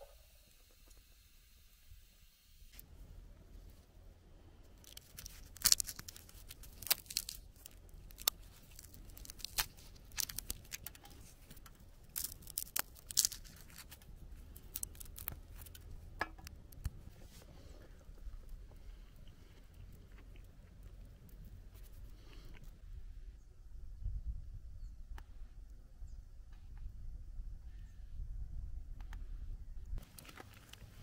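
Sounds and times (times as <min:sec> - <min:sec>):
chestnut shell cracking: 0:04.8 - 0:17.0.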